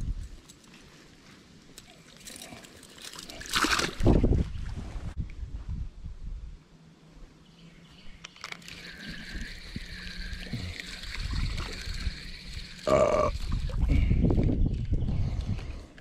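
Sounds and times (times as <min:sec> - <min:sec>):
fishing reel whirring: 0:08.4 - 0:14.3.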